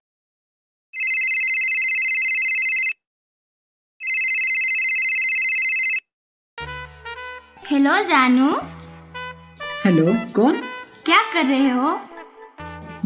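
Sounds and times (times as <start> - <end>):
telephone ringing: 1.0 - 3.0, 4.0 - 6.1.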